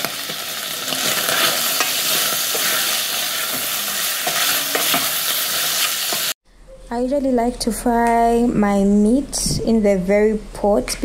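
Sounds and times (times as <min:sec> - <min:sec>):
meat sizzling in oil: 0:00.0 - 0:06.4.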